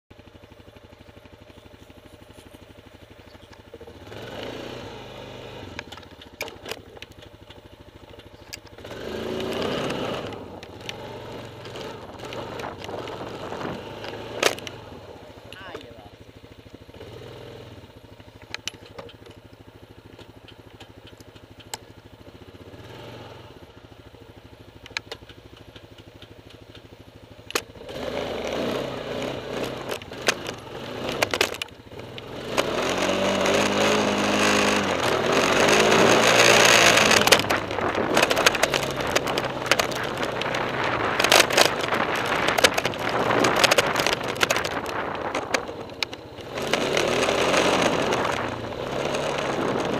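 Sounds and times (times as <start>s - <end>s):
quad engine accelerating: 0.1s - 49.9s
clicks and rattles: 5.7s - 14.8s, 18.4s - 21.9s, 24.8s - 27.7s, 29.2s - 49.9s.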